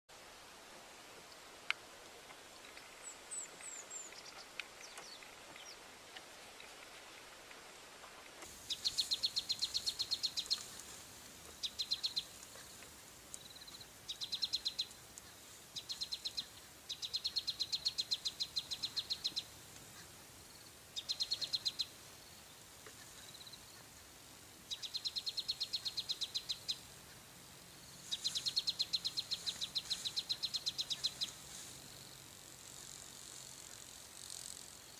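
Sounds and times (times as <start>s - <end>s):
faint outdoor hiss: 0.1s - 34.9s
insect chirping: 8.5s - 24.1s, 24.7s - 34.9s.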